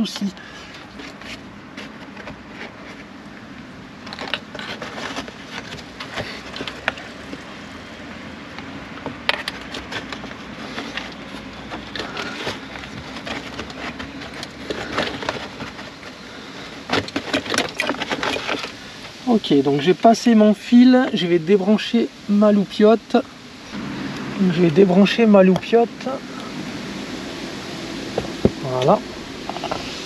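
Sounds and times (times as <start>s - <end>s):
wire and plastic trim rustling: 0.0s - 7.5s, 9.0s - 19.4s.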